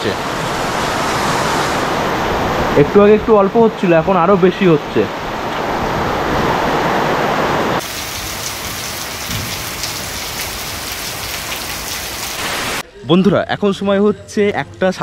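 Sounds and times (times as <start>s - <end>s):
heavy rain pouring: 5.2s - 12.8s.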